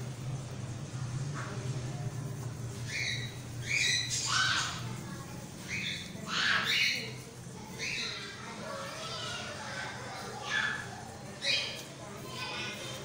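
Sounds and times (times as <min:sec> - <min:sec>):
bird squawking: 0:02.8 - 0:04.9, 0:05.7 - 0:07.2.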